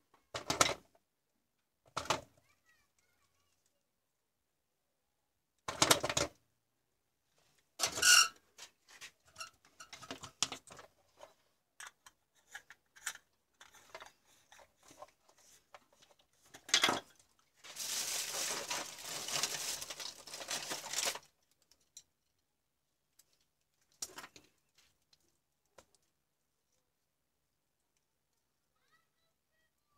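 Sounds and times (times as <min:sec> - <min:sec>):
plastic handling clicks and knocks: 0:00.1 - 0:00.8, 0:01.9 - 0:02.3, 0:05.6 - 0:06.4
scraping rustle: 0:17.6 - 0:21.2.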